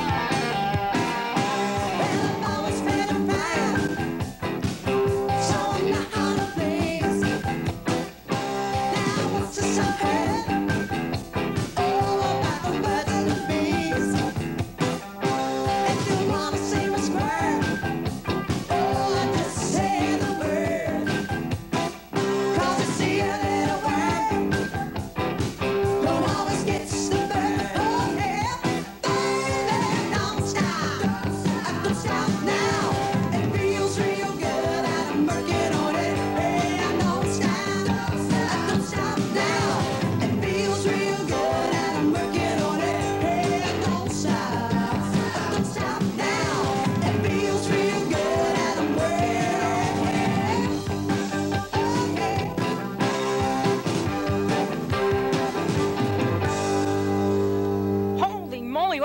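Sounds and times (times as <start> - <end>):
rock band playing: 0.0 - 59.0
person singing: 1.4 - 4.0, 5.3 - 7.5, 8.5 - 10.8, 11.8 - 14.3, 15.3 - 17.8, 18.6 - 21.1, 22.5 - 24.6, 26.0 - 50.9.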